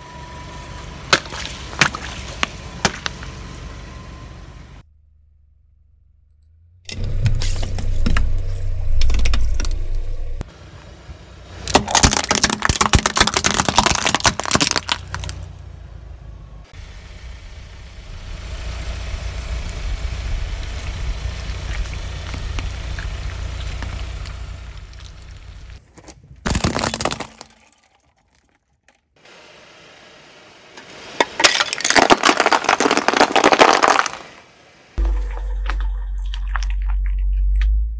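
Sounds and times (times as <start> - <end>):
low engine rumble: 0.0 - 11.8, 14.8 - 26.4, 34.4 - 37.9
tyre crushing objects crackling: 11.7 - 15.4, 31.4 - 34.4.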